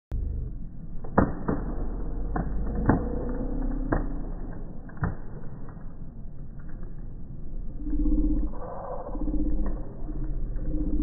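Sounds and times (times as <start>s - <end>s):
low rumble: 0.1s - 11.0s.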